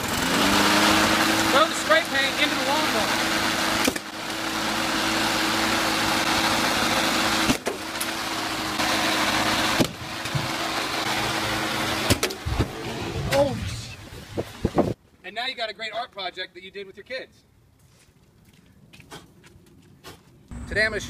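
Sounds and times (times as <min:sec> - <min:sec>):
lawn mower engine running: 0:00.0 - 0:13.3.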